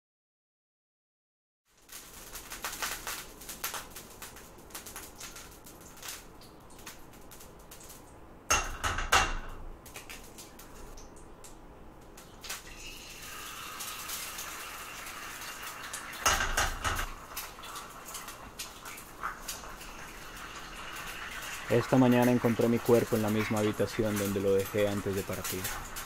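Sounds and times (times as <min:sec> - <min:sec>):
eggs sizzling in a pan: 0:01.7 - 0:11.2, 0:12.0 - 0:26.0
eggs cracked against a pan: 0:02.0 - 0:21.7.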